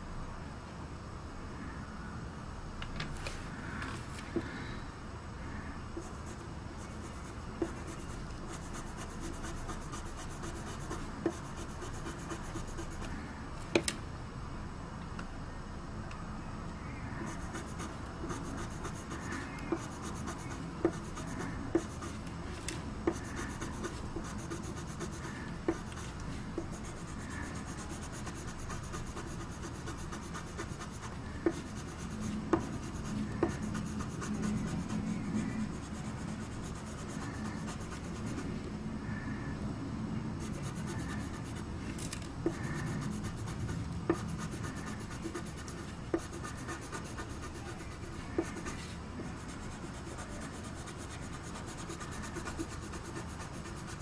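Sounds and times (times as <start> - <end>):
pencil scratching on paper: 6.0 - 13.1, 17.2 - 22.3, 23.1 - 38.4, 40.4 - 41.7, 42.5 - 54.0.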